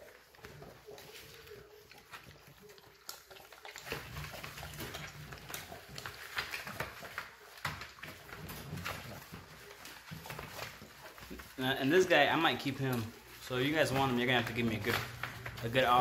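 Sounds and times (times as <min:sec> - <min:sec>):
paws scrabbling: 0:00.0 - 0:16.0
wood shavings rustling: 0:05.6 - 0:16.0.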